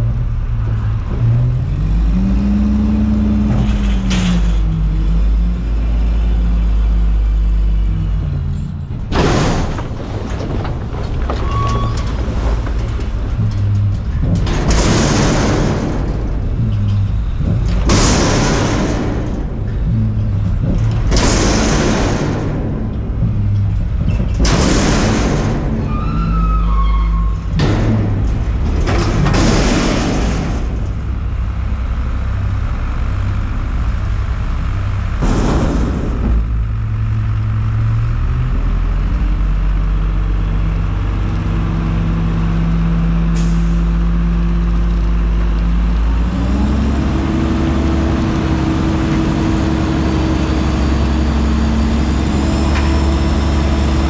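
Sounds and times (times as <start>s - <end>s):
truck engine and hydraulics: 0.0s - 54.0s
dumpster banging: 8.1s - 38.0s.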